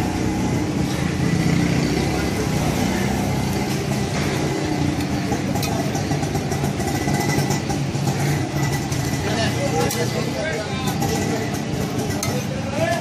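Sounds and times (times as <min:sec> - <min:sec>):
spatula scraping on griddle: 0:05.6 - 0:13.0.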